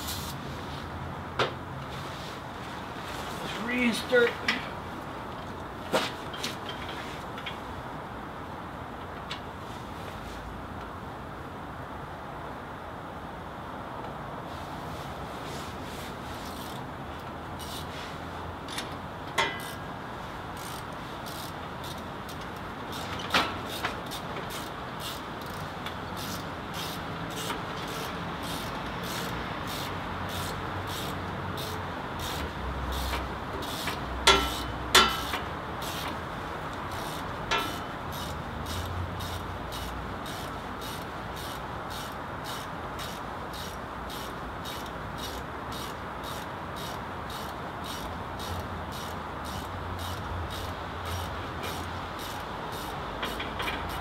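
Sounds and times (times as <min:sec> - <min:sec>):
steady background hum: 0:00.0 - 0:54.0
hand tools clinking on metal: 0:34.3 - 0:35.4, 0:37.5 - 0:38.4.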